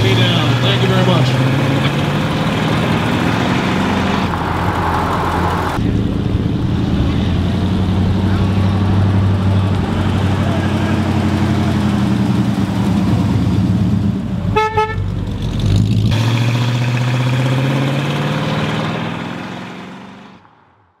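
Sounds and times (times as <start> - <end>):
car engine running: 0.0 - 20.4
car horn toot: 14.5 - 15.1.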